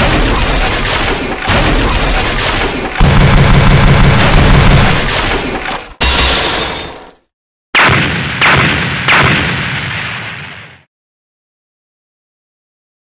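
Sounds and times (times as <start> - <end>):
gunfire burst: 0.0 - 6.4
heavy gunshots ringing out: 0.0 - 6.7, 7.8 - 10.9.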